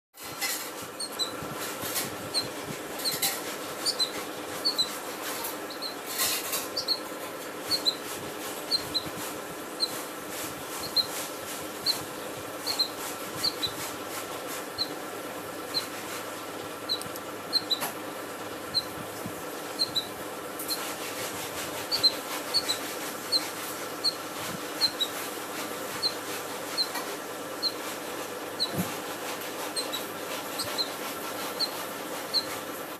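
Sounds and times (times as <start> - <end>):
steady low hum: 0.2 - 32.9
bird chirping high: 3.8 - 4.9, 6.8 - 7.1, 7.7 - 8.0, 12.6 - 13.7, 16.9 - 17.8.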